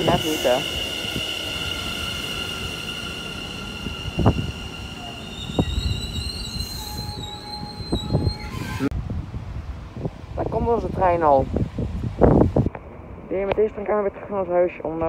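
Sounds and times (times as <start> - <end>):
wheel squeal on rails: 0.0 - 8.9
train rumble and whine: 0.0 - 9.0.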